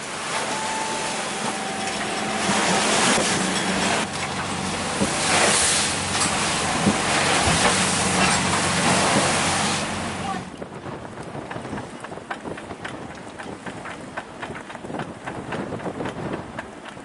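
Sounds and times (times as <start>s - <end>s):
spray dashing against boat: 0.0s - 10.6s
boat engine hum: 0.0s - 17.0s
waves breaking: 0.0s - 17.0s
wind: 0.0s - 17.0s.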